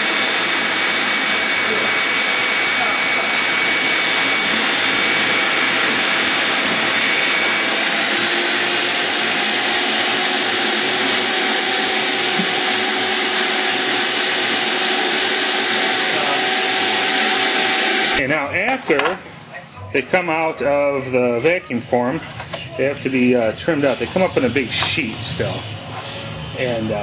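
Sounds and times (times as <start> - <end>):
vacuum motor whining: 0.0 - 18.3.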